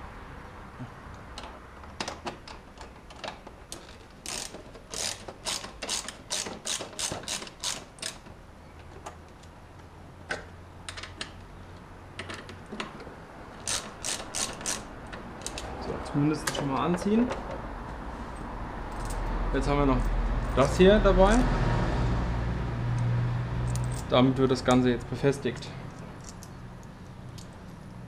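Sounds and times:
socket ratchet clicking: 4.2s - 8.2s, 13.6s - 15.7s.

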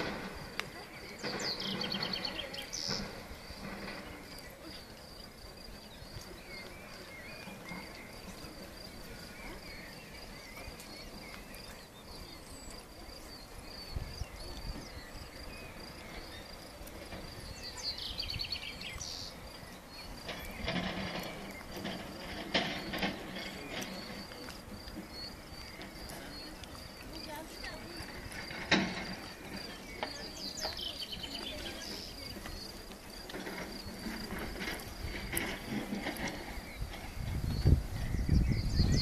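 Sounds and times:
insects chirring: 0.0s - 39.0s
songbird trilling: 0.8s - 3.6s, 17.4s - 21.8s, 22.6s - 32.8s, 36.3s - 39.0s.

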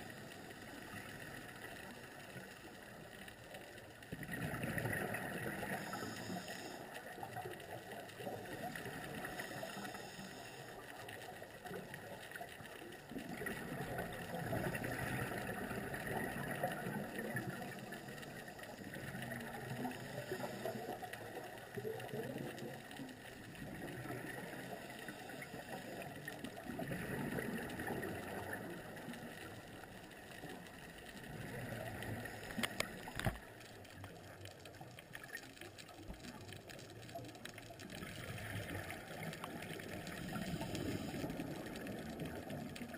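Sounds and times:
underwater regulator breathing: 5.5s - 7.3s, 9.1s - 11.2s, 17.6s - 21.6s, 39.9s - 41.7s.

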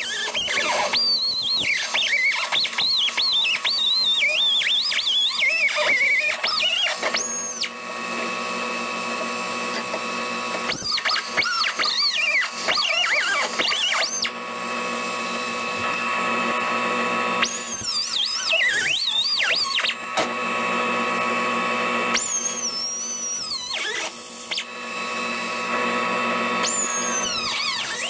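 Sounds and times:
pneumatic grinder cutting metal: 0.0s - 28.0s.

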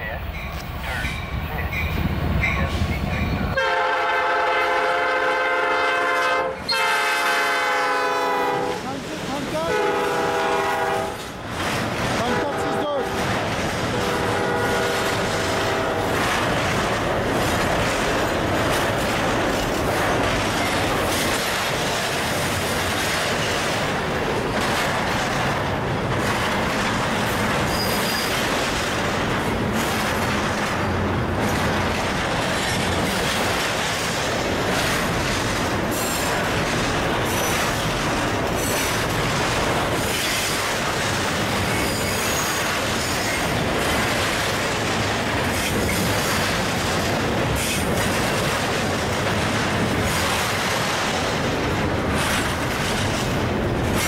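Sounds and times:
freight train wheels rumbling: 0.0s - 54.0s
high wheel squeals: 27.7s - 28.3s.

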